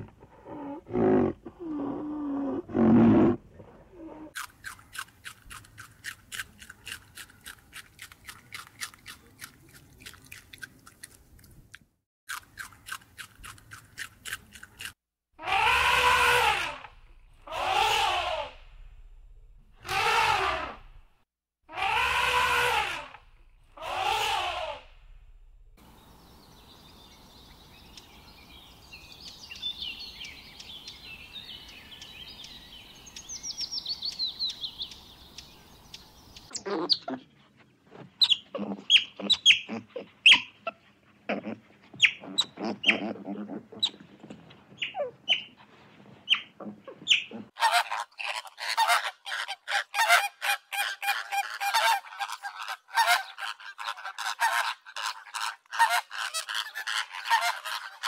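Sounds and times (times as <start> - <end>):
elephant calls: 23.8 - 24.8
high bird chirps: 26.2 - 37.1.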